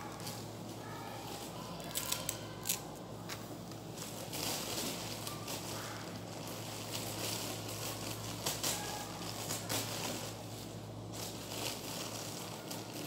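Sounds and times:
steady low hum: 0:00.0 - 0:13.0
stems snapping: 0:01.9 - 0:03.4
mint leaves rustling and crackling: 0:03.8 - 0:13.0.

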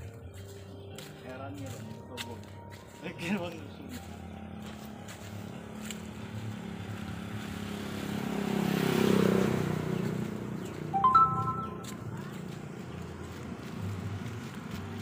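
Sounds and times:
vehicle engine passing: 0:04.3 - 0:15.0
high-pitched rising call: 0:11.0 - 0:11.9.

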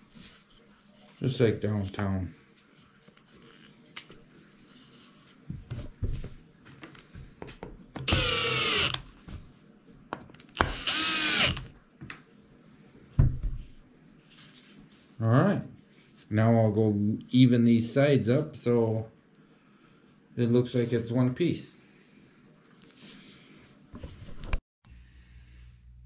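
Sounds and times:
cordless drill whining: 0:08.1 - 0:09.0, 0:10.6 - 0:11.7.

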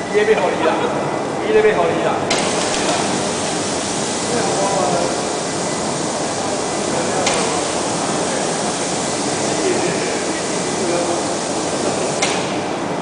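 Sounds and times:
stretch-wrapping machine running: 0:02.3 - 0:12.6.

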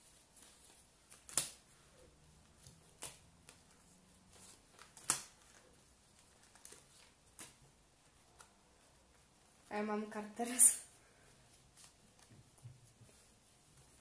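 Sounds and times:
cards rustling: 0:00.0 - 0:08.9
cards clicking on glass table: 0:04.4 - 0:05.6.

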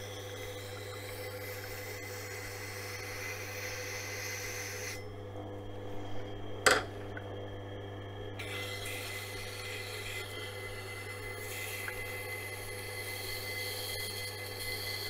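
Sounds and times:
sharpener motor hum: 0:00.0 - 0:05.2, 0:08.4 - 0:15.0
knife grinding on sharpening wheel: 0:08.4 - 0:15.0.

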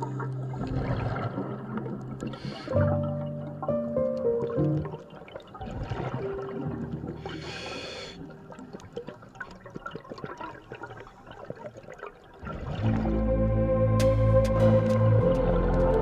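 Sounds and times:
music: 0:00.0 - 0:05.2, 0:12.9 - 0:16.0
small crackling clicks: 0:00.0 - 0:05.9
underwater bubbling water: 0:00.0 - 0:13.6.

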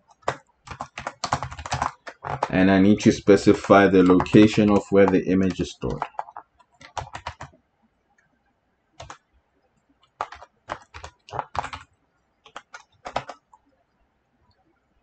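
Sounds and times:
typing on computer keyboard: 0:00.0 - 0:07.6, 0:09.0 - 0:09.2, 0:10.0 - 0:13.7.

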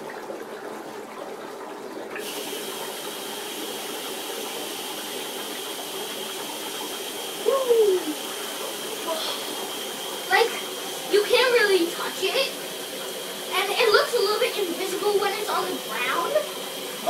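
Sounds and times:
dry ice bubbling in water: 0:00.0 - 0:17.0
child's voice whooing: 0:07.4 - 0:08.2.

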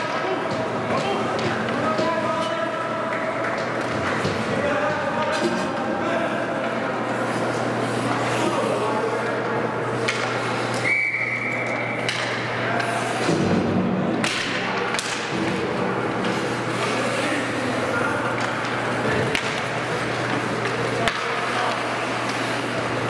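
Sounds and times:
hockey sticks and puck clacking: 0:00.0 - 0:05.8, 0:06.6 - 0:13.5, 0:14.2 - 0:23.0
scattered voices: 0:11.6 - 0:23.0.

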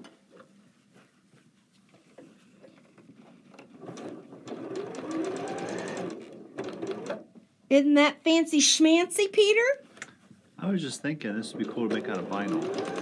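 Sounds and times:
sewing machine stitching: 0:03.6 - 0:07.3, 0:11.2 - 0:13.0.

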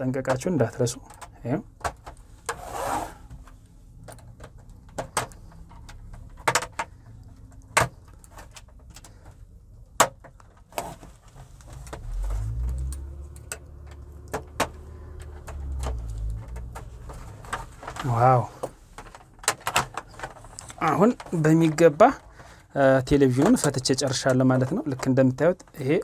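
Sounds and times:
scraping rustle: 0:02.5 - 0:03.4.

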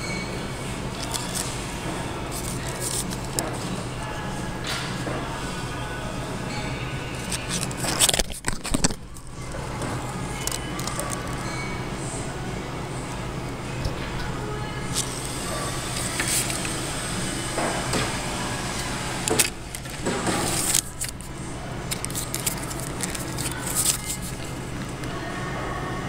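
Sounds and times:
store background hum: 0:00.0 - 0:26.0
fingers rustling cardboard tags: 0:00.9 - 0:01.6, 0:02.2 - 0:03.8, 0:07.1 - 0:11.6, 0:14.8 - 0:16.8, 0:18.8 - 0:25.1.

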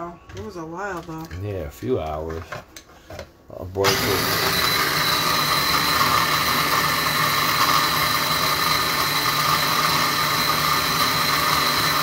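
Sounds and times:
food chopper motor whirring: 0:03.8 - 0:12.0.

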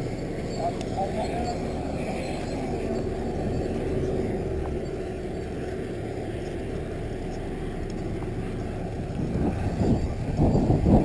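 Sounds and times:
tyres rolling on loose ground: 0:00.0 - 0:11.0
wind on camera: 0:07.4 - 0:11.0.

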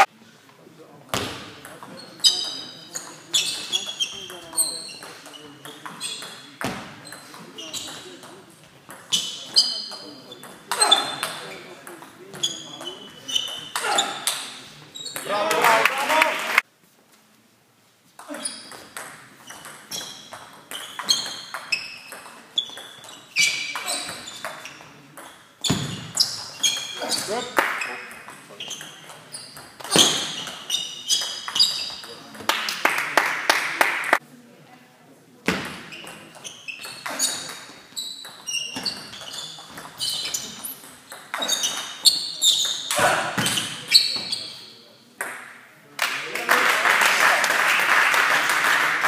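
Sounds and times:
table tennis ball hits: 0:18.7 - 0:23.1.

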